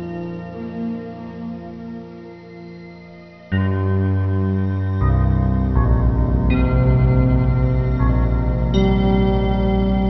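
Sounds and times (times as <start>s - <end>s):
sustained chords music: 3.5s - 10.0s
low pulsing bass: 5.0s - 10.0s.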